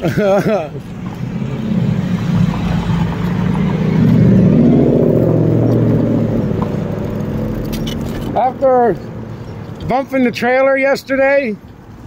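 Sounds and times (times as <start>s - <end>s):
passing car engine: 0.0s - 8.4s
road noise: 0.0s - 12.0s.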